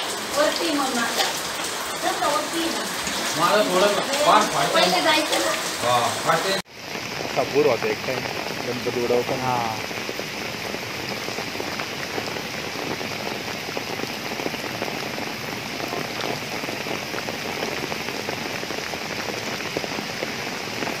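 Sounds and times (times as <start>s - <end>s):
rushing river water: 0.0s - 6.6s
heavy rain pattering: 0.0s - 21.0s.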